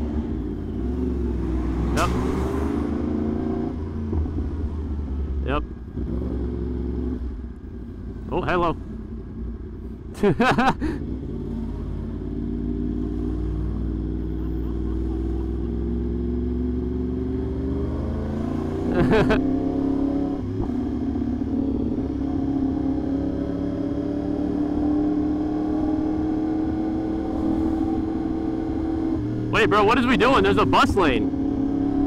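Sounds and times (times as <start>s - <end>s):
motorcycle engine revving: 0.0s - 9.7s, 10.5s - 32.0s.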